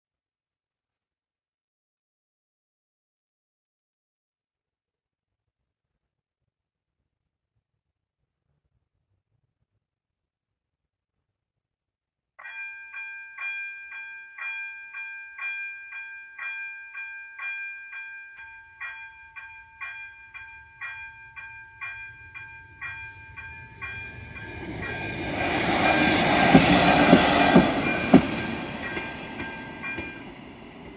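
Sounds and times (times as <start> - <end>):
level crossing bell ringing: 12.4 - 30.3
passing train rumble: 18.4 - 30.9.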